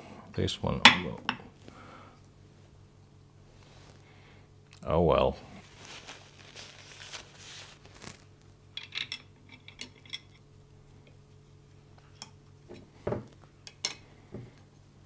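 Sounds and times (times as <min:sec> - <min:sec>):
paper tissue rustle: 0:05.5 - 0:08.5.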